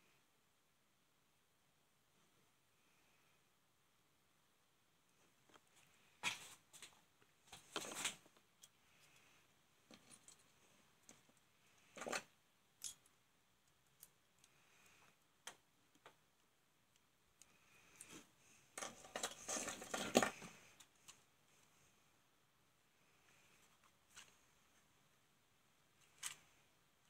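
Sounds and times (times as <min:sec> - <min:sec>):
small parts clicking and rattling: 0:09.9 - 0:18.1.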